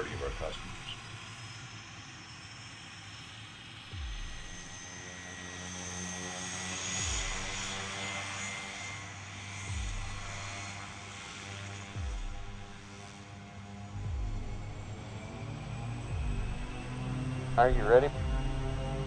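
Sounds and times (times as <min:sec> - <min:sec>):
high turbine whine: 0:00.0 - 0:19.0
propeller hum: 0:00.0 - 0:19.0.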